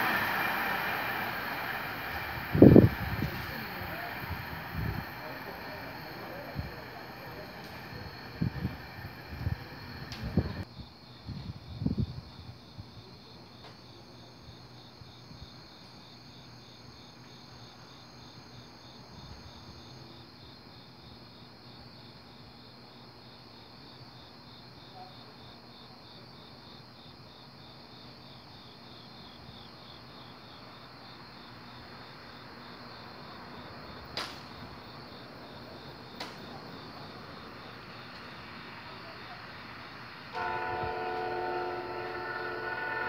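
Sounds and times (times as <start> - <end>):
train approaching rushing noise: 0.0 - 10.6, 33.1 - 43.0
crickets chirping: 0.0 - 43.0
sharp click: 34.2 - 34.5.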